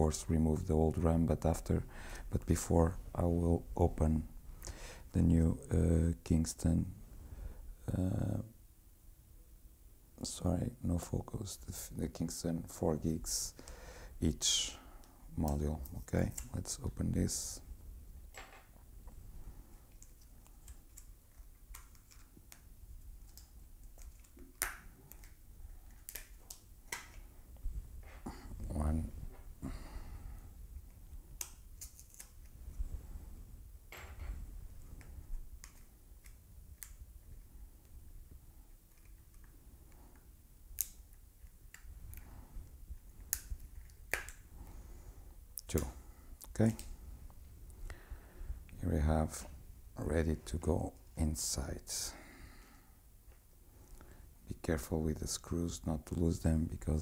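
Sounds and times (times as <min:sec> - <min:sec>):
plastic package clicking and snapping: 0:19.9 - 0:27.2, 0:43.2 - 0:44.4.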